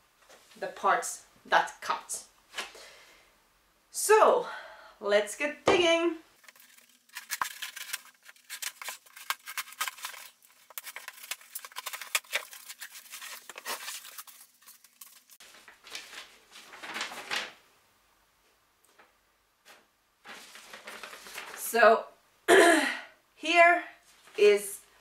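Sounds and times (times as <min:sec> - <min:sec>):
cardboard parcel being unpacked: 0:06.4 - 0:17.6, 0:20.2 - 0:21.7
paper rustling: 0:06.4 - 0:17.6, 0:19.7 - 0:21.7.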